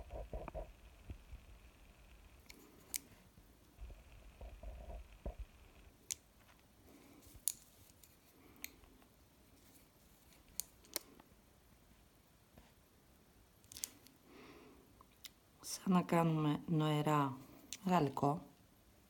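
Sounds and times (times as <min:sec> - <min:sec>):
soft handling sounds: 0:02.4 - 0:12.9.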